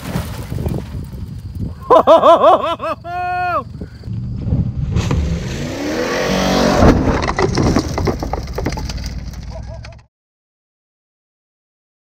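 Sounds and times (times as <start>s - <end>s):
truck engine revving hard: 4.4s - 7.2s
knocks and clatter of truck: 6.7s - 10.0s.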